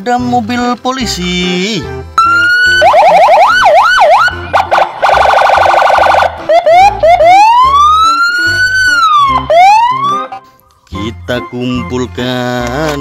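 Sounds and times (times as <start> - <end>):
police siren switching tones: 2.2 - 10.3.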